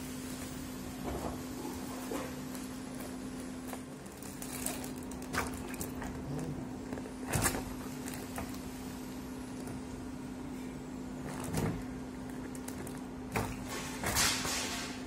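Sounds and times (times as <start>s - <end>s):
steady low hum: 0.0s - 15.0s
plastic bag crinkling: 3.0s - 8.7s.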